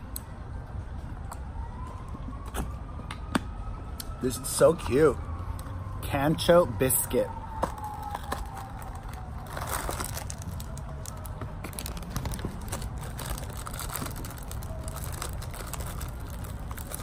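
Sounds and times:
foil wrapper crinkling: 8.0 - 17.0.

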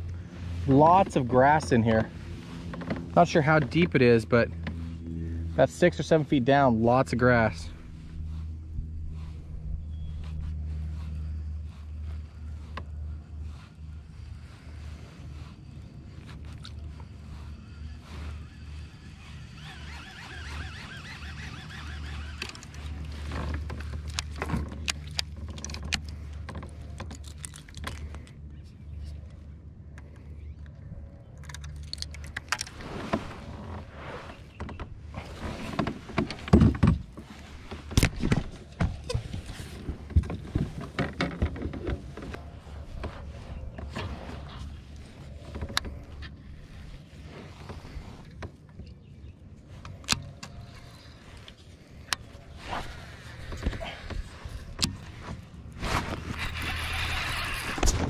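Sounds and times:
low steady rumble: 0.0 - 58.0
steady low hum: 0.0 - 58.0
fishing rod and reel clicks: 15.6 - 28.4, 29.0 - 32.8, 56.0 - 58.0.

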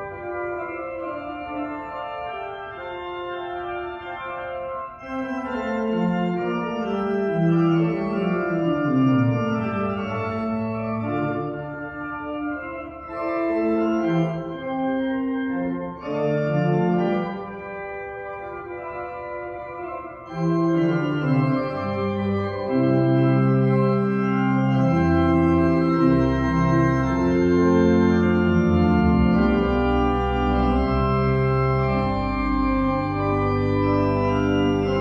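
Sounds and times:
organ playing sustained chords: 0.0 - 35.0.

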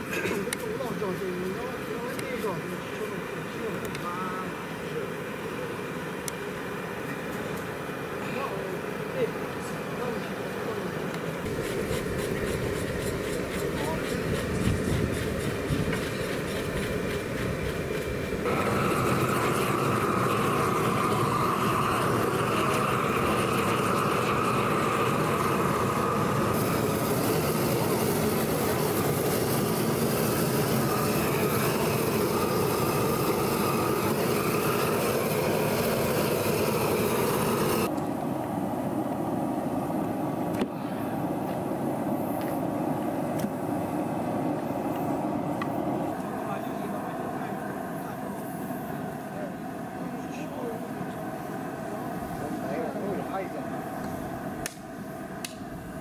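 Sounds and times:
propane torch flame rushing: 11.2 - 56.0.

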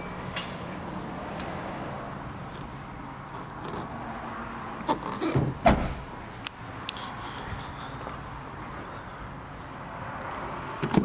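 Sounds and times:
car tailgate shutting thump: 5.3 - 6.0.

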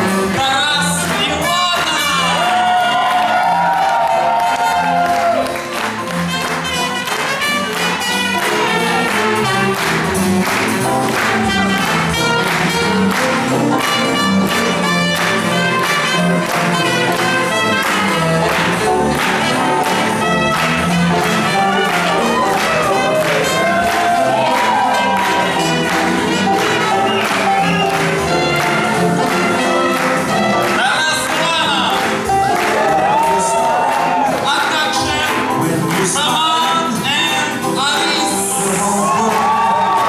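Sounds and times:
swing band playing: 0.0 - 40.0
trumpet: 0.0 - 40.0
saxophone: 1.4 - 31.0.

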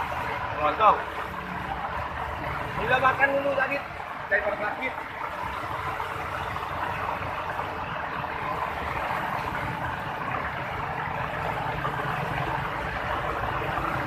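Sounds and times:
traffic driving through water: 0.0 - 14.0.

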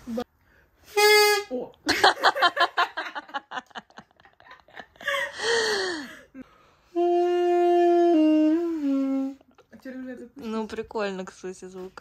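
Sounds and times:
breathy rush of air: 5.0 - 6.9.

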